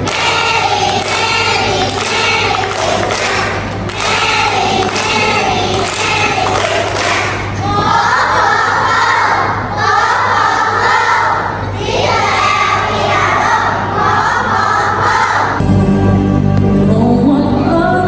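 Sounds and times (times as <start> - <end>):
recorded music over loudspeakers: 0.0 - 7.7, 15.1 - 18.0
young children singing together: 0.0 - 15.6.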